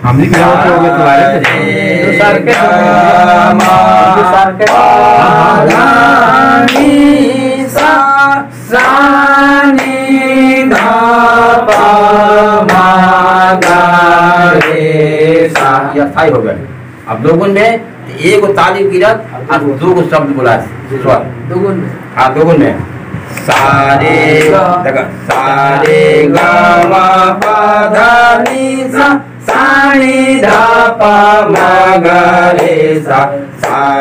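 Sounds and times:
man chanting note syllables: 0.0s - 14.2s
hands clapping: 0.2s - 0.6s, 1.4s - 1.7s, 2.5s - 2.8s, 3.5s - 4.9s, 5.6s - 6.0s, 6.6s - 7.0s, 7.7s - 8.0s, 8.7s - 10.0s, 10.6s - 11.0s, 11.6s - 12.0s, 12.6s - 13.0s, 13.6s - 13.8s, 14.6s - 14.8s, 15.5s - 15.8s, 23.4s - 24.6s, 25.3s - 28.7s, 29.4s - 29.8s, 30.4s - 30.8s, 31.5s - 31.8s, 32.6s - 32.8s, 33.6s - 34.0s.

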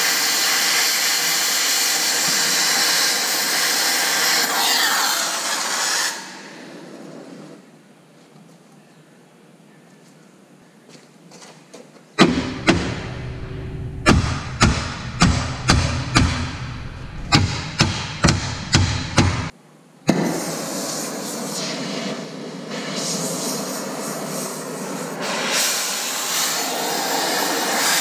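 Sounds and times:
cutting torch hissing: 0.0s - 6.4s
hammer striking steel: 12.2s - 19.5s.

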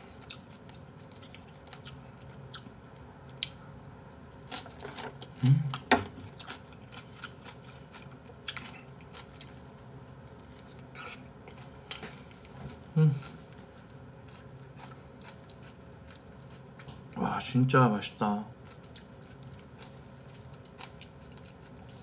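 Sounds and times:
chewing and mouth noises: 0.2s - 2.7s, 5.4s - 12.6s, 13.2s - 17.2s, 18.6s - 22.0s.

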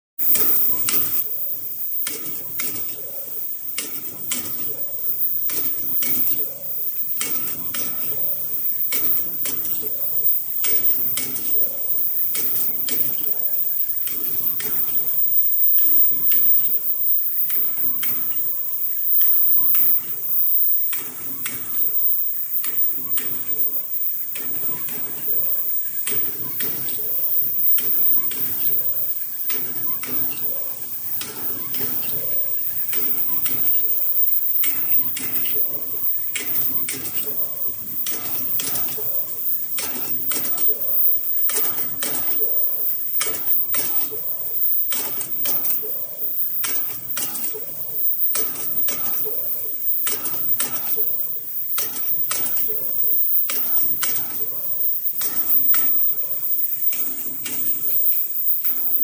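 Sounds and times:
machinery clicking and clattering: 0.2s - 59.0s.

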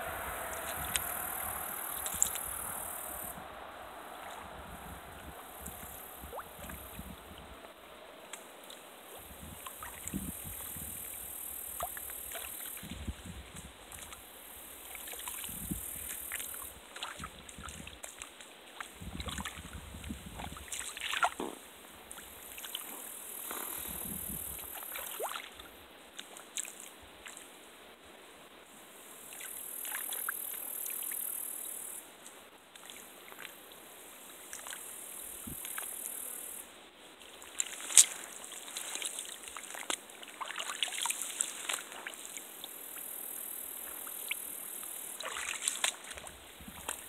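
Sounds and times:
high hiss: 0.0s - 12.8s
water sloshing and trickling: 0.2s - 10.8s, 14.9s - 21.4s, 24.5s - 25.6s, 37.3s - 42.5s, 45.1s - 47.0s.

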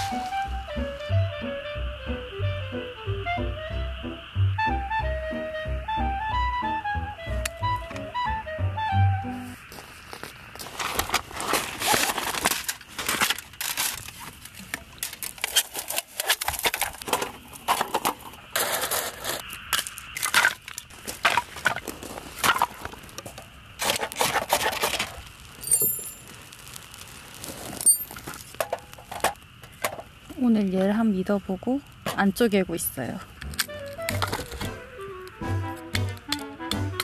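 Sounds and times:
firewood being handled: 0.0s - 0.7s, 9.3s - 31.0s, 33.4s - 36.2s
fire crackling: 0.0s - 37.0s.

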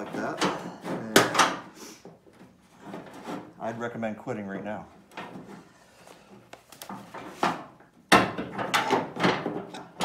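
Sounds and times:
metal scraping and rattling: 2.4s - 4.0s.

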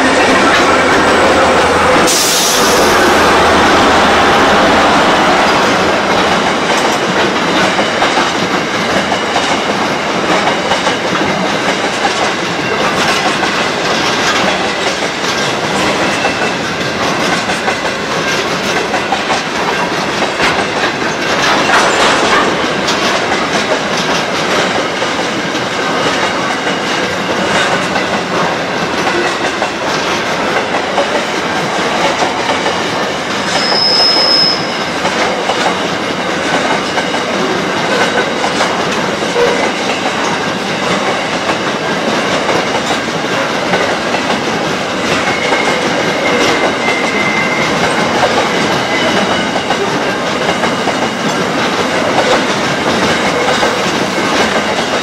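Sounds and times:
freight train rumbling past: 0.0s - 55.0s
wheels clicking over rail joints: 35.0s - 55.0s.

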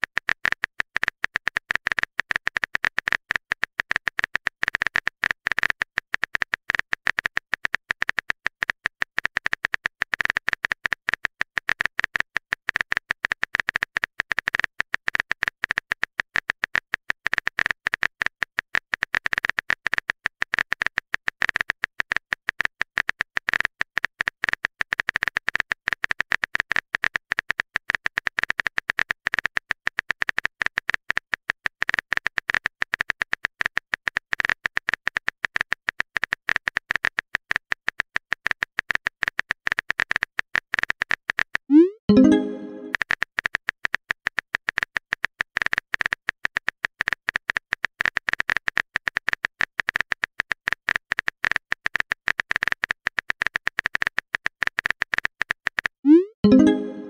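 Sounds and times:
rapid electronic clicking: 0.1s - 41.7s
high steady tone: 41.7s - 43.0s, 56.1s - 57.0s.

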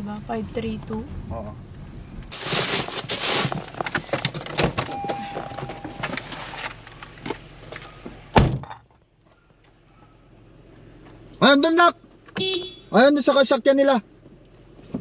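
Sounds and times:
rustling and small knocks: 2.3s - 9.8s
car door slamming: 4.0s - 6.4s, 8.0s - 8.8s.

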